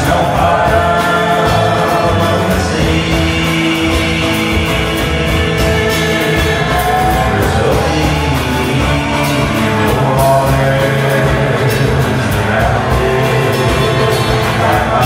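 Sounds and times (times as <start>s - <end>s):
acoustic guitar: 0.0s - 15.0s
drums and cymbals beat: 0.0s - 15.0s
upright bass: 0.0s - 15.0s.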